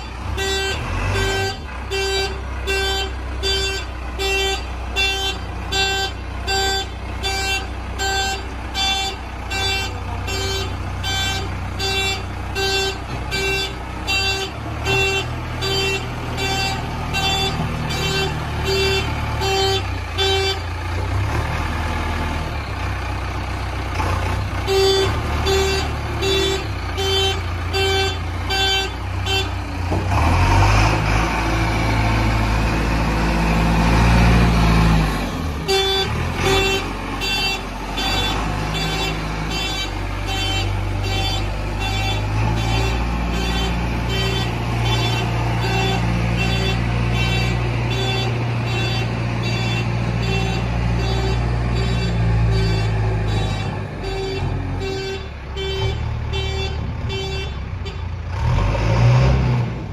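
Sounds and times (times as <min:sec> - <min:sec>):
diesel engine running: 0:00.0 - 0:59.9
reversing alarm beeping: 0:35.6 - 0:58.0.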